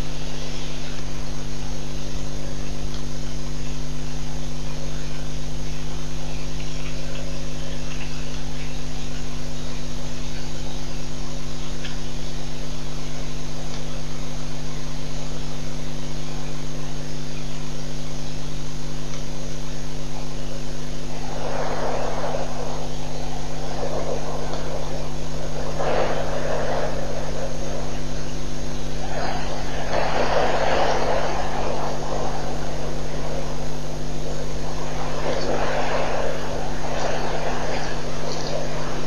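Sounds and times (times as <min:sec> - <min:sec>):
electrical hum: 0:00.0 - 0:39.0
rushing noise: 0:17.9 - 0:39.0.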